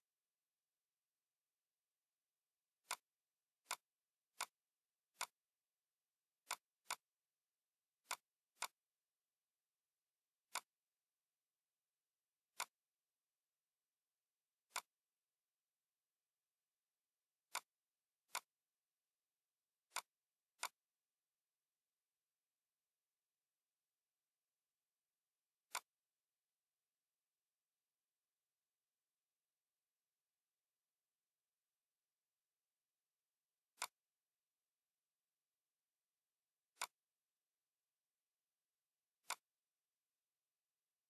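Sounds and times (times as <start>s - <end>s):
computer mouse clicks: 2.8s - 5.4s, 6.4s - 7.1s, 8.0s - 8.8s, 10.4s - 10.8s, 12.5s - 12.8s, 14.6s - 15.0s, 17.5s - 18.6s, 19.8s - 20.9s, 25.6s - 26.1s, 33.7s - 34.1s, 36.7s - 37.1s, 39.2s - 39.6s.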